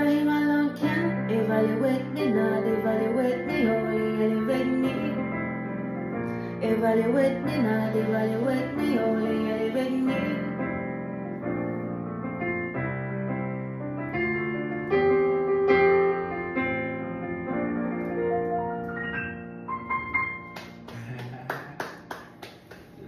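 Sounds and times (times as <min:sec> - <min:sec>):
keyboard piano chords: 0:00.0 - 0:23.0
hand claps: 0:20.4 - 0:23.0.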